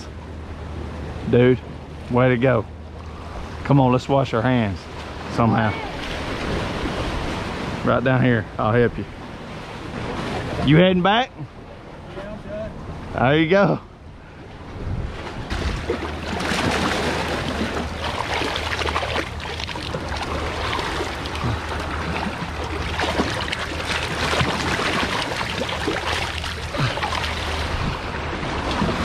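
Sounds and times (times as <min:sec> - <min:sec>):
seawater sloshing between boulders: 0:04.5 - 0:08.4, 0:09.0 - 0:29.0
wind rumble on microphone: 0:14.0 - 0:18.4, 0:26.7 - 0:29.0.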